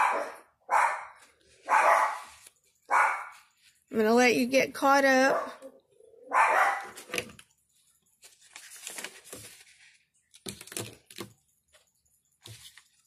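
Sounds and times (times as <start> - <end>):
paper rustling: 1.2 - 3.9, 6.8 - 13.0
markers clicking and knocking on desk: 10.3 - 11.5.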